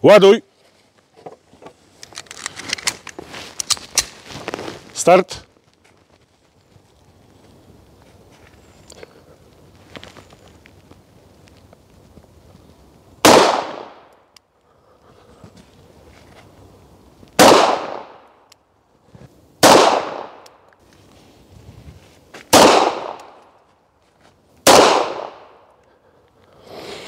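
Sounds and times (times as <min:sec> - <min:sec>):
pistol shots: 0:13.2 - 0:14.1, 0:17.4 - 0:18.2, 0:19.6 - 0:20.4, 0:22.5 - 0:23.4, 0:24.6 - 0:25.6.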